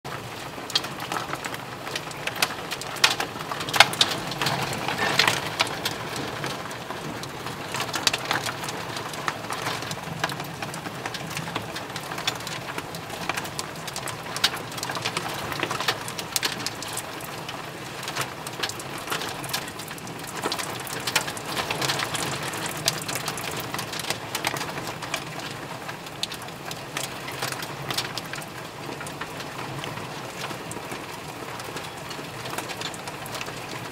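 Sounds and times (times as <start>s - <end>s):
rain hissing: 0.3s - 25.7s
hailstones striking wooden deck: 0.7s - 17.0s.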